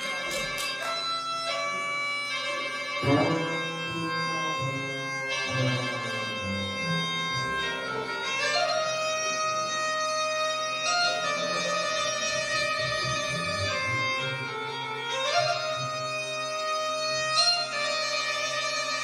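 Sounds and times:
bagpipe melody with drone: 0.0 - 19.0
double bass low notes: 3.0 - 8.3, 11.1 - 14.5.

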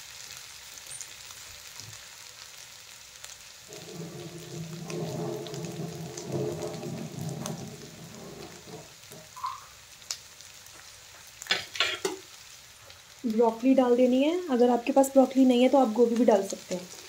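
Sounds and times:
onions and potatoes frying in oil: 0.0 - 17.0
low hum: 3.7 - 9.3
sharp clattering knocks: 3.7 - 9.4.

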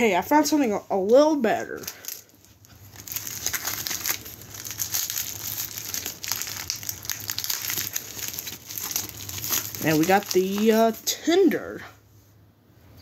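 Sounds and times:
tissue paper crinkling: 1.6 - 11.1.

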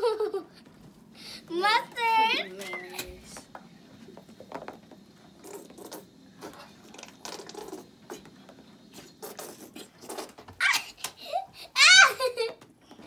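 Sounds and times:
squeeze bottle sputtering: 4.4 - 11.4.

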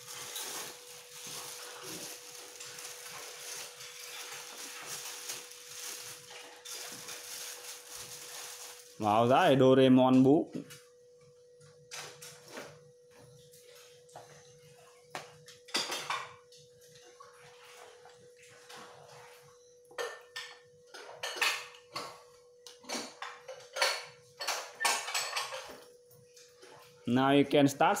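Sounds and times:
papery rustles: 0.0 - 9.0.

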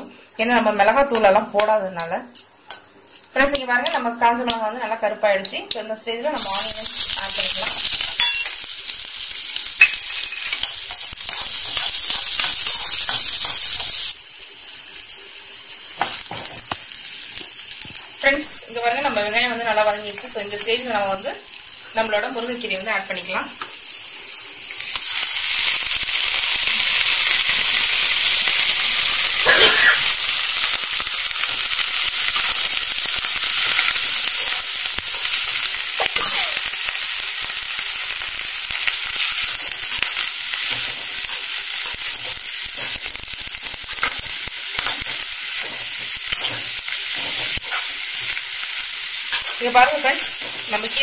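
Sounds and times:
leaves sizzling in hot oil: 2.7 - 51.0
spoon scraping a pan: 44.8 - 48.4.

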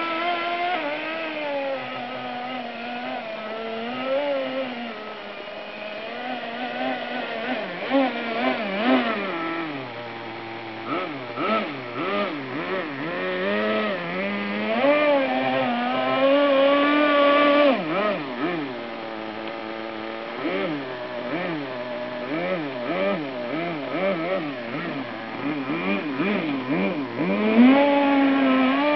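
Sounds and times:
small nitro engine revving: 0.0 - 28.9.

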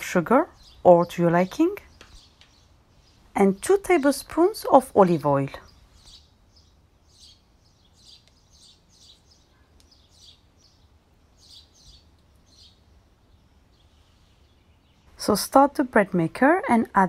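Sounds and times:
faint bird chirps: 5.5 - 15.4.

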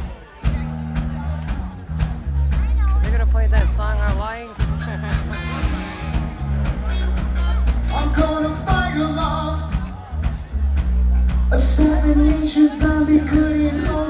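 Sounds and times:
live rock band playing: 0.0 - 14.0
person singing: 6.9 - 9.9, 11.5 - 14.0.

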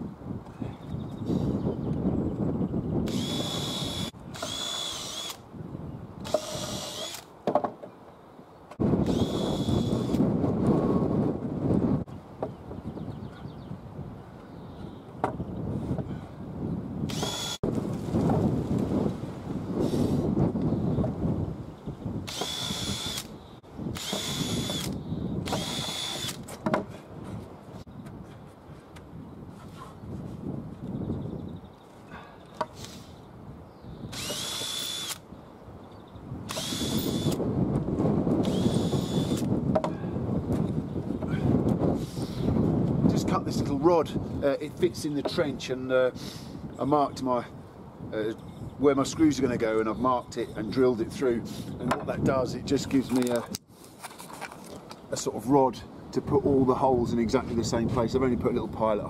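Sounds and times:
cordless drill whining: 3.0 - 5.4, 6.2 - 7.3, 9.0 - 10.2, 17.1 - 17.6, 22.2 - 26.5, 34.1 - 35.2, 36.5 - 37.4, 38.4 - 39.5.

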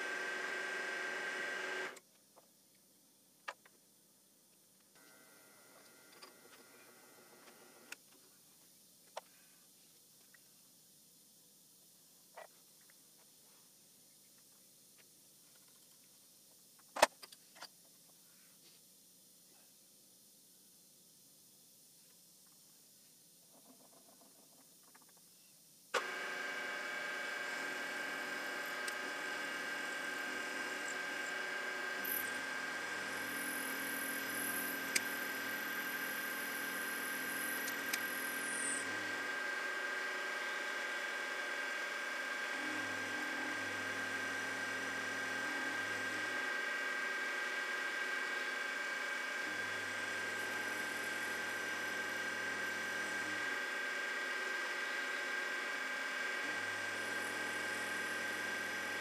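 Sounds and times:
drill motor whine: 0.0 - 2.0, 5.0 - 8.0, 26.0 - 59.0.

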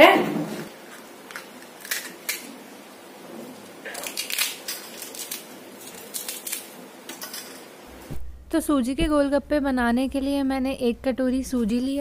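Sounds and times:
crisp shells cracking: 1.2 - 2.5, 3.8 - 7.7.

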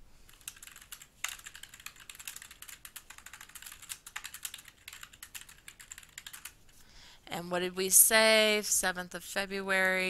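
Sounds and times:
computer keyboard typing: 0.3 - 6.7.

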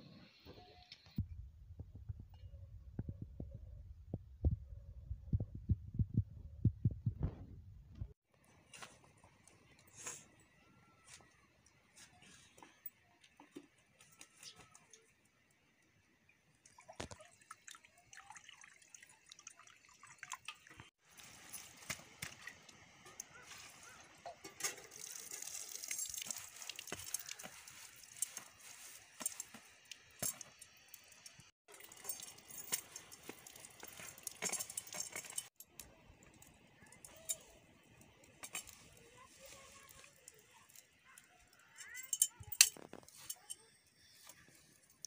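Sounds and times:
water poured into a wok: 16.6 - 22.7, 24.4 - 29.4
leaves rustling: 23.3 - 24.0, 24.7 - 29.9, 38.7 - 40.7
metal tongs clinking: 31.7 - 35.5, 41.8 - 43.7.

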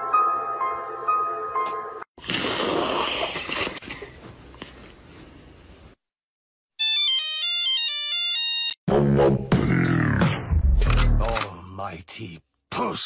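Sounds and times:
electronic ringtone melody: 6.8 - 8.8.

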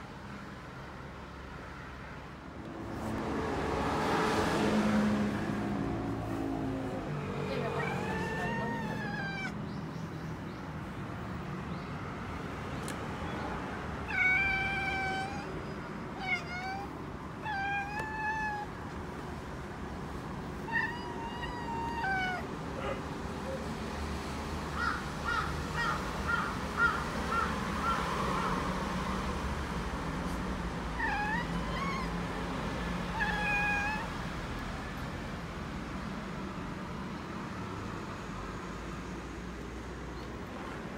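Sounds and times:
cat chattering chirps: 7.5 - 9.6, 14.1 - 18.7, 31.0 - 32.2, 33.1 - 34.2
cat meowing softly: 7.5 - 9.6, 14.1 - 18.8, 20.6 - 23.0, 31.0 - 32.3, 32.9 - 34.2.

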